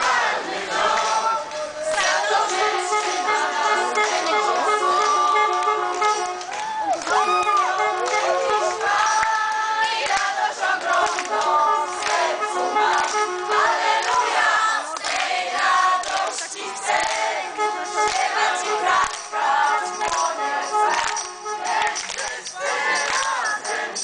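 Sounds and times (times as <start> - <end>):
crowd singing a hymn: 0.0 - 6.3, 7.0 - 24.0
hand claps: 4.0 - 14.3, 14.9 - 15.4, 16.0 - 17.3, 18.0 - 19.3, 20.0 - 20.3, 20.9 - 24.0.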